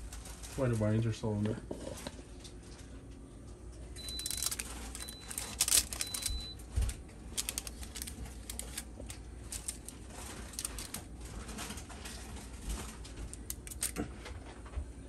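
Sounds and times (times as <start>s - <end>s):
aluminium foil crinkling: 0.0s - 1.1s, 4.0s - 14.3s.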